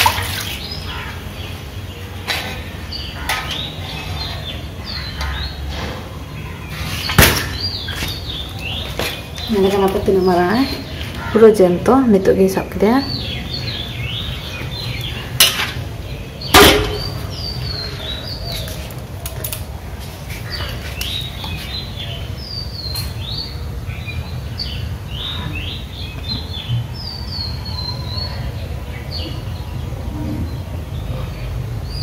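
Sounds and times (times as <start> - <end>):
small birds chirping: 0.1 - 32.0
sharp knocks: 16.5 - 17.3.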